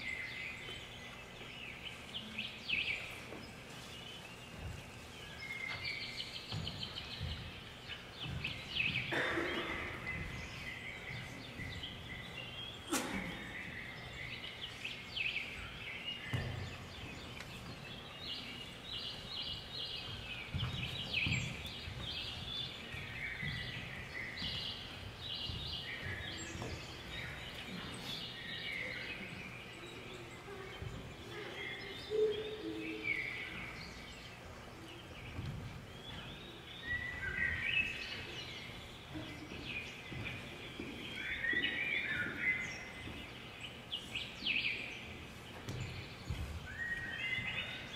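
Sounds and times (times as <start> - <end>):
birds chirping and trilling: 0.0 - 47.9
bare feet thumping on wooden floor: 6.5 - 9.2.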